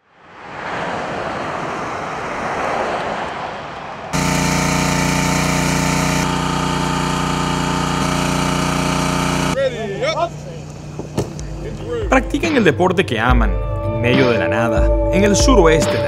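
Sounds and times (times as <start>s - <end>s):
car passing by: 0.0s - 4.2s
small engine droning: 4.2s - 12.1s.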